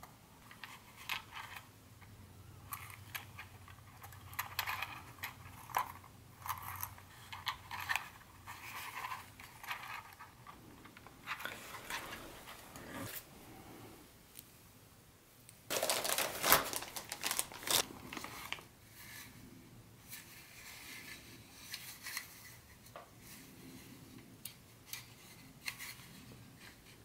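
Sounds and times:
plastic toy cars clicking: 2.7 - 11.6
gloves rubbing: 15.7 - 18.7.

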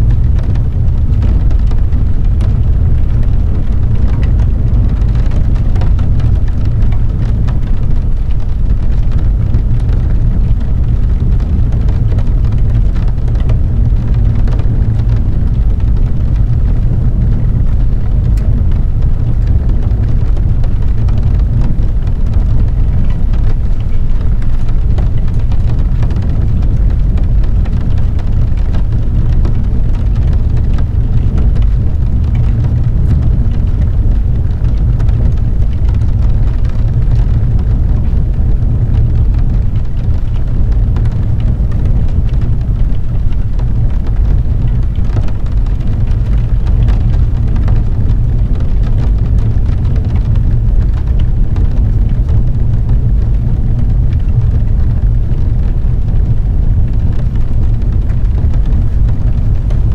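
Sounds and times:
deep rumble of rain: 0.0 - 59.9
raindrops ticking on car: 0.0 - 59.9.

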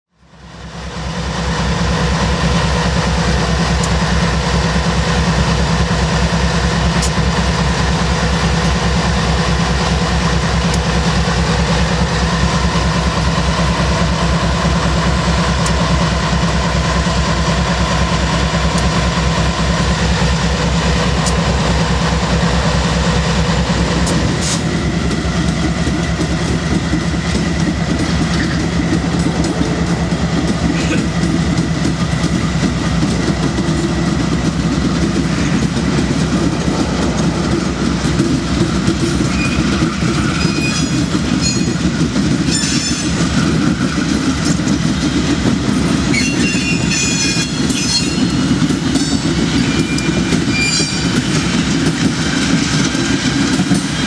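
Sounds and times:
diesel locomotive engines rumbling: 0.1 - 54.0.

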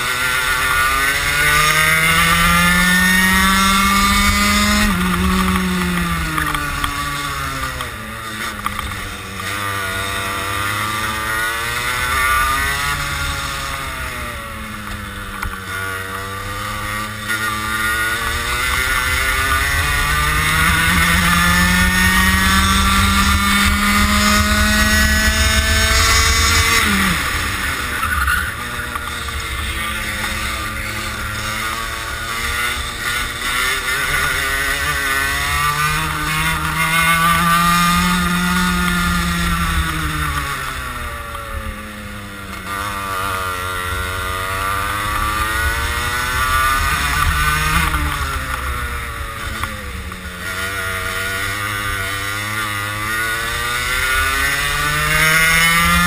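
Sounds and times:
kart engine revving: 0.0 - 56.0.

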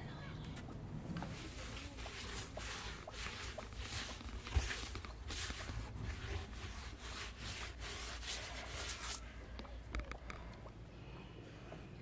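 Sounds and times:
brush scrubbing clay wall: 1.1 - 9.3.

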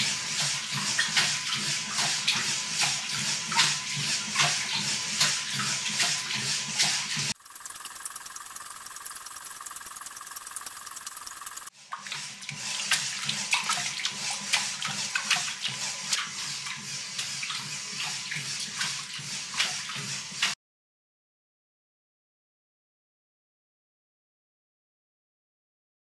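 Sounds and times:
water splashing in a tank: 0.0 - 20.6.

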